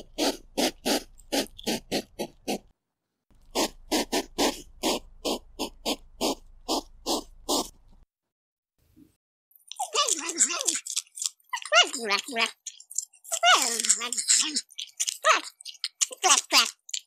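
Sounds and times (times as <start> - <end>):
hedgehog puffing: 0.0 - 2.7, 3.3 - 8.0.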